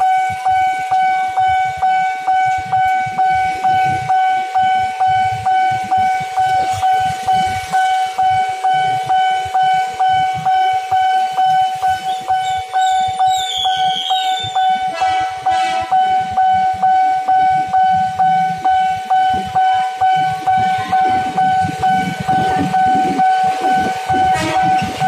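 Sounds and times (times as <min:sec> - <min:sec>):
idling traffic rumble: 0:00.0 - 0:25.0
level-crossing warning bell: 0:00.0 - 0:25.0
short car horn beep: 0:13.5 - 0:16.1, 0:24.2 - 0:24.9.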